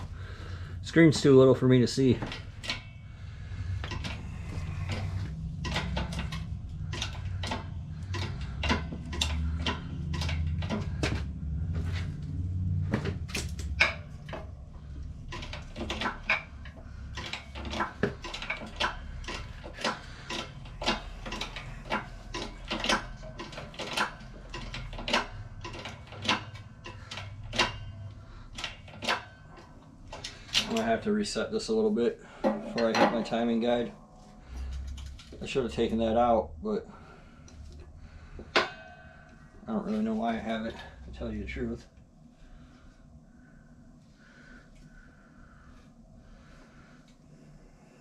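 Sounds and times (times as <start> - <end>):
low rumble: 0.0 - 17.2.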